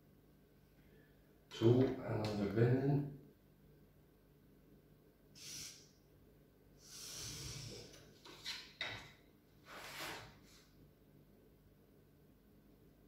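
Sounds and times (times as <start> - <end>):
marker scratching along a ruler: 5.4 - 5.9, 6.8 - 8.7.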